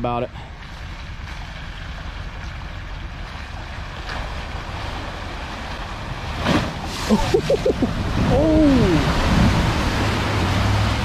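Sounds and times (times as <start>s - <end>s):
water splashing: 0.6s - 11.0s
person whooping: 7.1s - 9.1s
wind on microphone: 7.1s - 11.0s.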